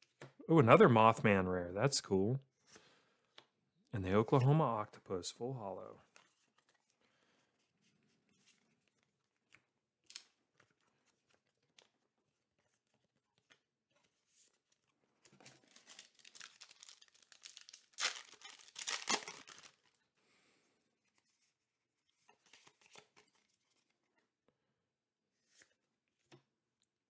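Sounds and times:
cards being handled: 7.6s - 19.9s, 22.3s - 24.0s
foil wrapper crinkling and tearing: 15.3s - 20.0s.

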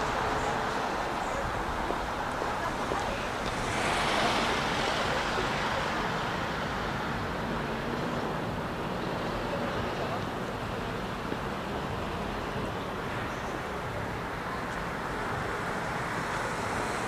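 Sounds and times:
vehicle passing: 0.0s - 7.7s
street traffic noise: 0.0s - 17.0s.

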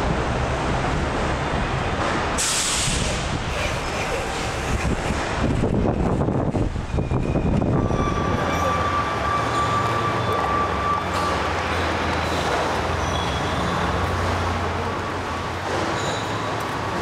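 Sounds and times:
machinery rumble and hiss: 2.4s - 5.1s.

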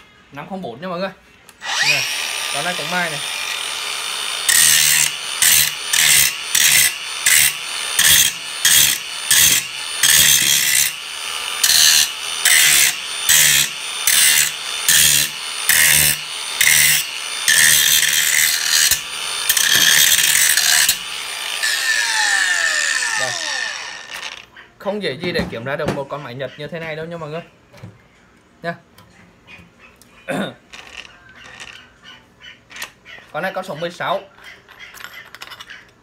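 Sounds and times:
angle grinder running: 1.6s - 24.5s.

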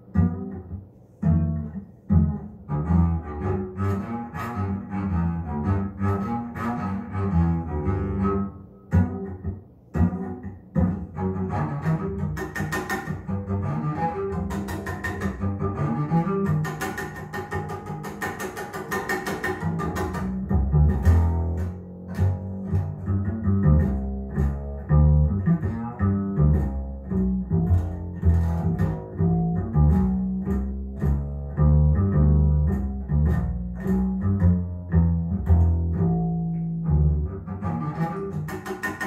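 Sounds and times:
plucked double bass: 0.0s - 39.0s
recorded jazz: 0.0s - 39.0s.

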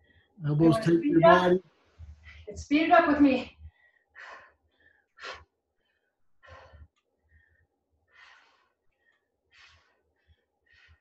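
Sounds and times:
woman breathing hard: 3.6s - 11.0s.

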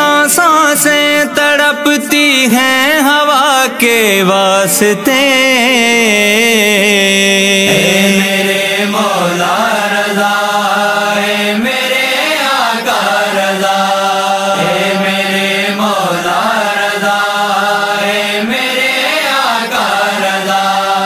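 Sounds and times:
devotional wordless singing: 0.0s - 21.0s
steady drone: 7.6s - 19.4s.

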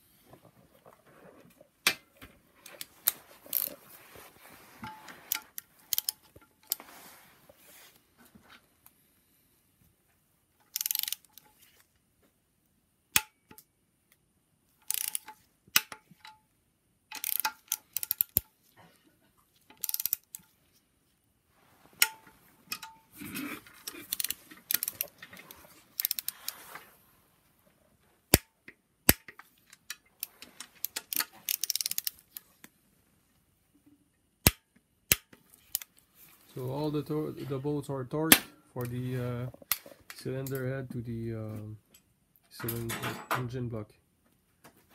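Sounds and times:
ratchet wrench clicking: 5.3s - 6.8s, 10.7s - 11.4s, 14.8s - 15.3s, 17.2s - 18.4s, 19.8s - 20.4s, 24.1s - 25.1s, 26.0s - 26.4s, 30.9s - 32.1s.

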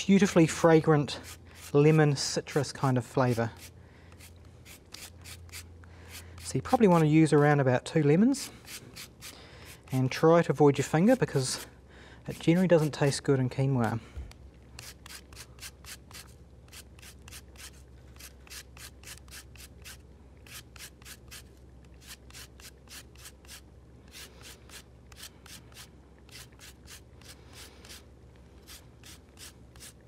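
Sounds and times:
lemon scraping on zester: 0.0s - 10.2s, 10.8s - 11.7s, 12.3s - 14.0s, 14.8s - 30.0s.

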